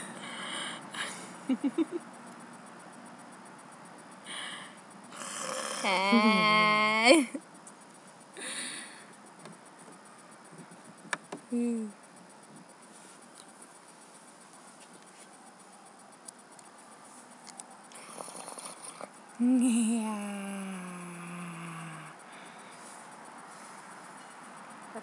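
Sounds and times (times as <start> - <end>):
background hiss: 0.0 - 25.0
girl making wordless vocal sounds: 5.8 - 7.3, 11.5 - 12.0, 19.4 - 22.2.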